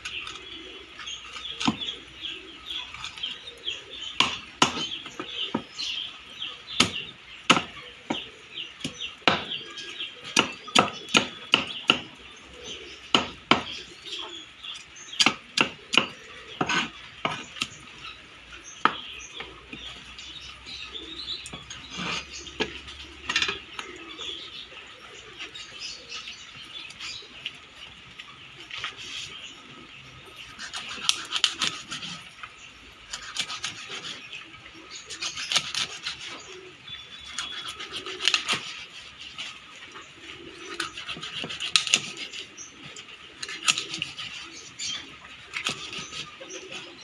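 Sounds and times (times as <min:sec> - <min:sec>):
cleaver scraping fish scales: 0:21.6 - 0:23.6, 0:30.4 - 0:32.3, 0:33.1 - 0:34.4, 0:35.0 - 0:36.6, 0:37.2 - 0:39.7, 0:40.6 - 0:47.0.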